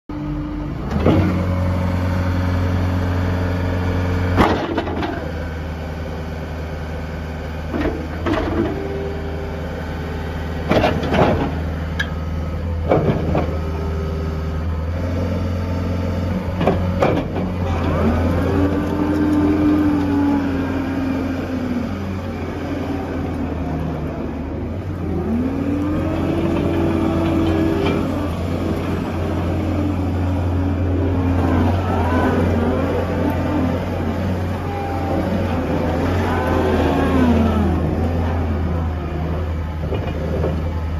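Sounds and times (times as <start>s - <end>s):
diesel engine running: 0.1s - 40.9s
hydraulic whine: 7.7s - 40.9s.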